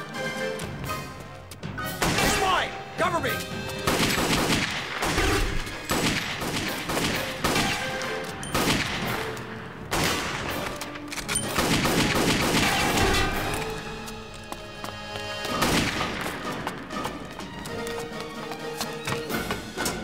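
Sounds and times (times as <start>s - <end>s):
rapid gunshots: 3.8s - 9.3s, 11.5s - 13.4s, 15.6s - 16.2s.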